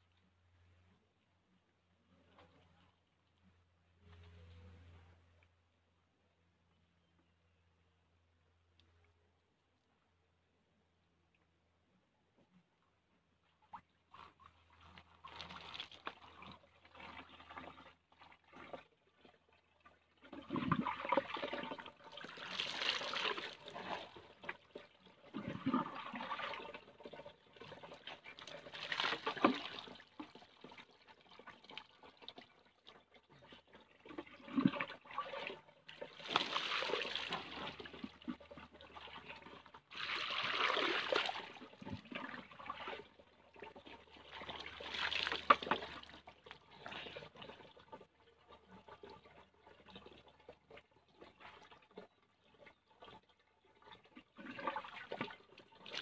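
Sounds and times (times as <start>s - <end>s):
water pouring and splashing: 13.7s - 56.0s.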